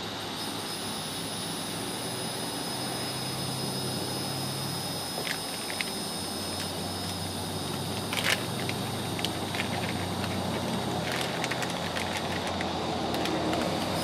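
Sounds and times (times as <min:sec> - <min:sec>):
steady background rumble: 0:03.1 - 0:14.0
plastic packet crinkling: 0:07.8 - 0:14.0.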